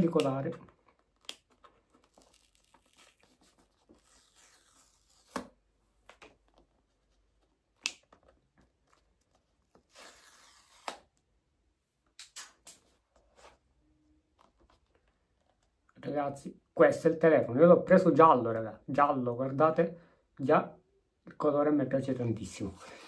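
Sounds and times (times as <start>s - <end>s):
plastic film crinkling: 0.8s - 5.4s
plastic film snapping: 0.9s - 6.4s
plastic film tearing: 1.2s - 5.6s, 9.7s - 11.1s.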